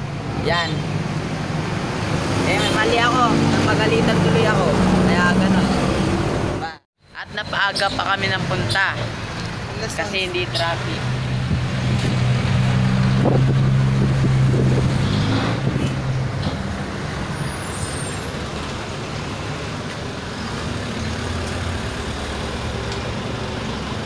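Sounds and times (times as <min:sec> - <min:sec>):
traffic drone: 0:00.0 - 0:24.0
vehicle engine hum: 0:00.0 - 0:24.0.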